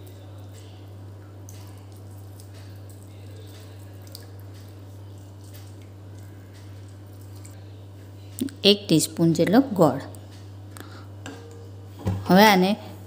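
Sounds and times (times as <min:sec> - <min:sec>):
juice dripping into gravy: 0:00.0 - 0:07.6
steady low hum: 0:00.0 - 0:13.0.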